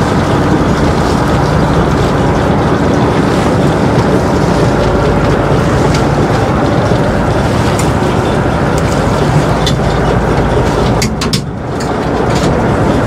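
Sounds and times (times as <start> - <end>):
boat engine running: 0.0 - 13.0
water noise: 0.0 - 13.0
wind: 0.0 - 13.0.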